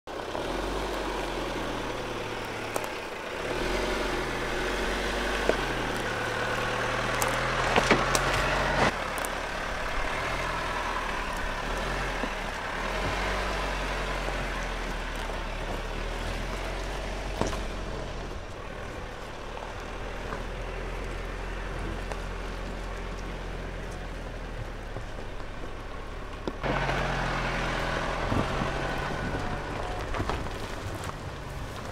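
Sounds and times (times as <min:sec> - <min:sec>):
car engine running at low speed: 0:00.1 - 0:31.9
stones knocking under tyres: 0:02.7 - 0:03.1, 0:05.2 - 0:09.4, 0:14.4 - 0:17.9, 0:28.3 - 0:31.9.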